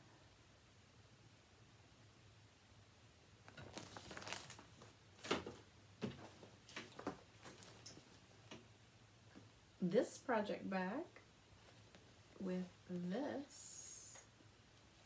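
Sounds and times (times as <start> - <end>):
paper and packaging crinkling: 3.4 - 5.6.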